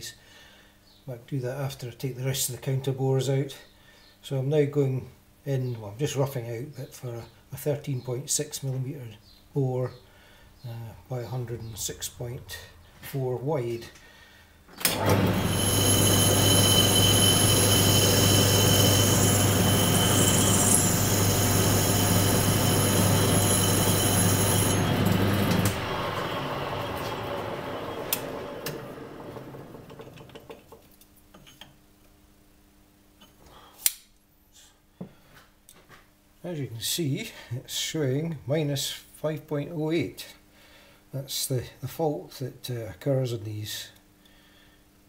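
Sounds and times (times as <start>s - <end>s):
motor winding down: 14.8s - 30.5s
machine motor hum: 14.8s - 30.6s
high-pitched tool whine: 15.0s - 29.1s.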